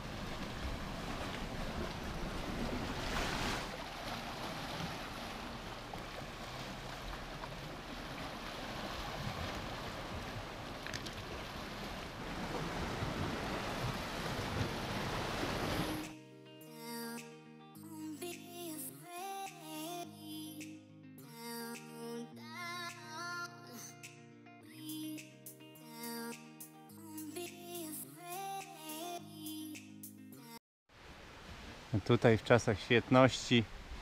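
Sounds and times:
waves washing against rocks: 0.0s - 16.0s.

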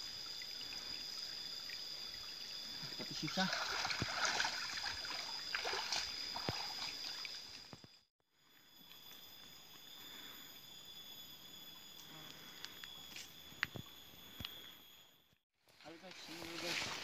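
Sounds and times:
water splashing and trickling: 0.0s - 8.0s.

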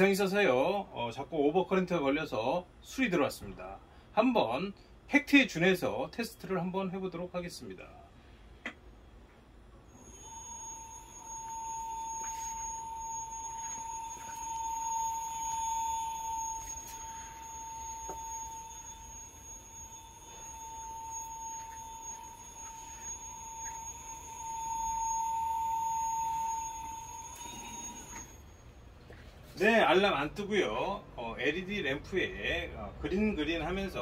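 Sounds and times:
faint high-pitched whine: 0.0s - 34.0s
servo motor whine: 9.9s - 28.7s.

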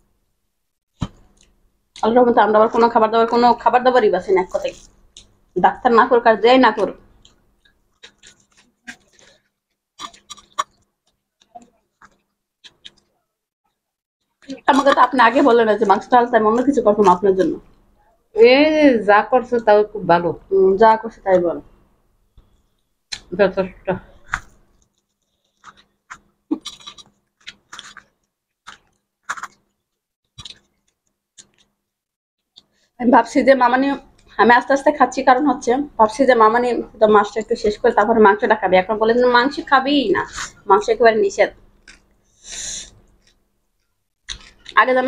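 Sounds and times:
chewing clicks and smacks: 4.8s - 5.4s, 7.2s - 13.1s, 24.3s - 31.7s, 41.8s - 42.2s, 43.0s - 44.8s.

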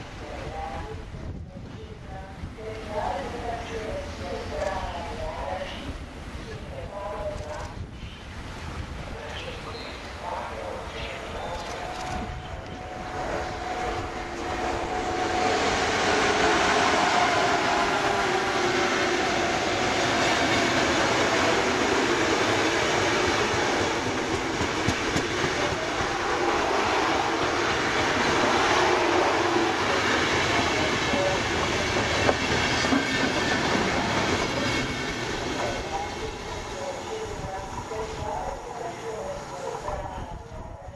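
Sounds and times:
train wheels on rails: 11.0s - 40.5s.

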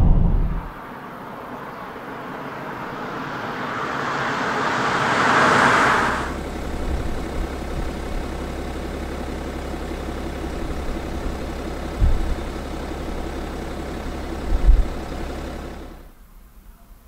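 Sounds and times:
diesel engine idling: 0.7s - 16.2s.

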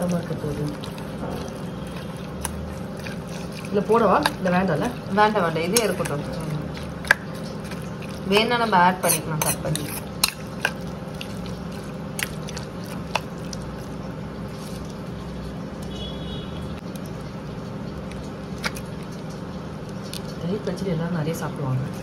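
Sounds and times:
spoon stirring wet food: 0.0s - 15.1s
low steady hum: 0.0s - 22.0s.

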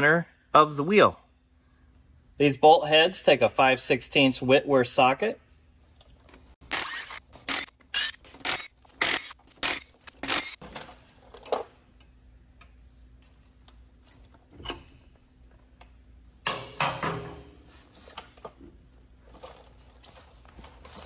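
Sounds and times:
cordless power tool bursts: 6.7s - 10.6s.

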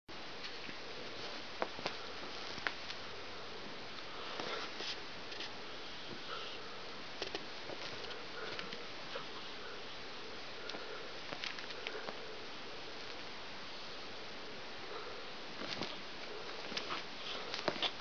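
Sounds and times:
steady hiss: 0.1s - 18.0s
cats scuffling on blanket: 0.5s - 3.0s, 4.2s - 6.2s, 15.5s - 18.0s.

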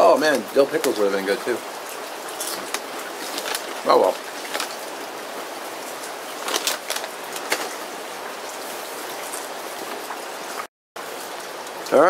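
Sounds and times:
steady rain: 0.0s - 12.0s
foil chip bag crinkling: 2.2s - 8.0s.

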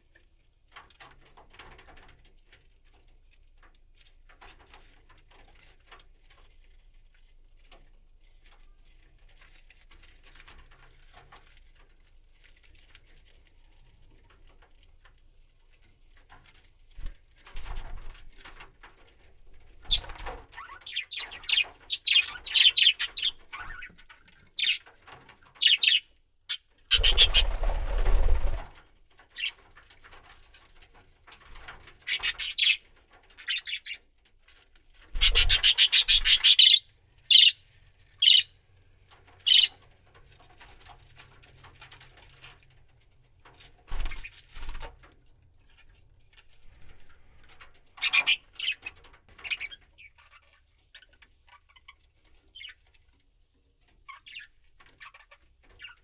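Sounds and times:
wings flapping: 19.6s - 24.0s, 26.9s - 30.3s, 35.0s - 36.6s, 43.5s - 45.1s
budgerigars chirping: 25.6s - 26.0s, 26.9s - 27.4s, 35.2s - 37.6s, 38.2s - 38.5s, 39.5s - 39.8s.

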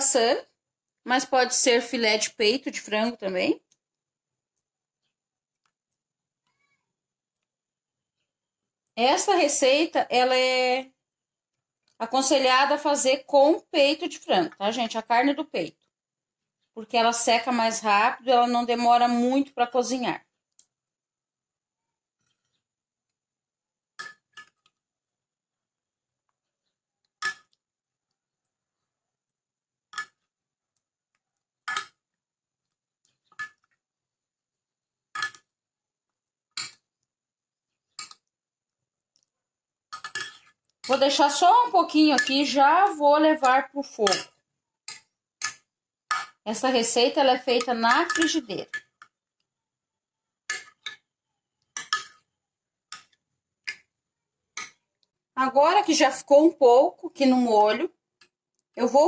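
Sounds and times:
metal spoon clinking on glass dish: 40.0s - 41.1s, 42.1s - 42.5s, 43.4s - 44.3s, 47.6s - 49.0s.

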